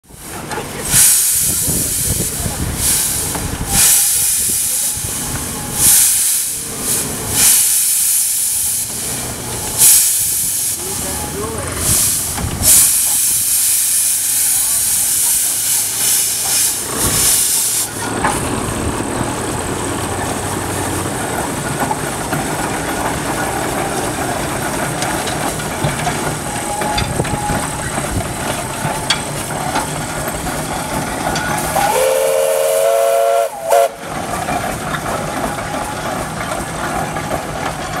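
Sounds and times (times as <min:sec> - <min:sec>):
steam engine running: 0:00.0 - 0:38.0
steam hissing: 0:00.1 - 0:35.4
steam whistle: 0:31.7 - 0:34.0.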